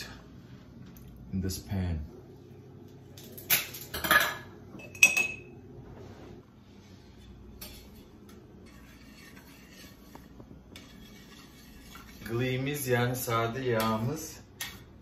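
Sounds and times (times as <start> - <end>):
metal utensils clanking in saucepan: 3.5 - 5.5, 7.4 - 13.0.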